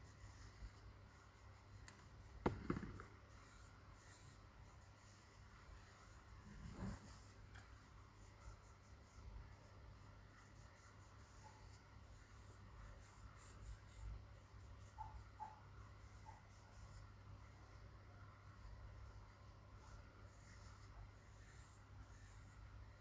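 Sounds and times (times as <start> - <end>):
soft bump: 2.4 - 3.1.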